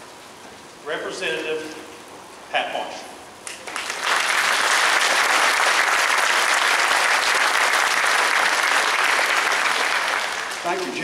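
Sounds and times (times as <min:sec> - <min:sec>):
crowd applauding: 0:03.5 - 0:11.0.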